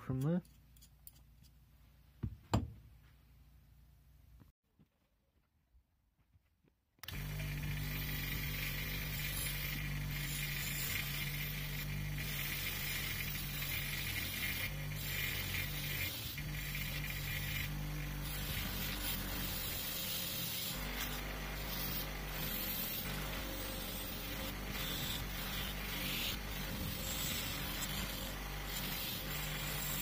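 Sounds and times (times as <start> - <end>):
bench grinder motor hum: 7.0 - 30.0
wire brush scratching metal: 7.2 - 30.0.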